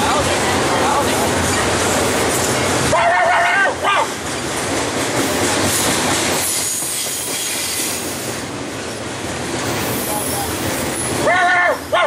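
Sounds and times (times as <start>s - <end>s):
train wheels rattling on rails: 0.0s - 12.0s
high wheel squeal: 9.7s - 11.3s.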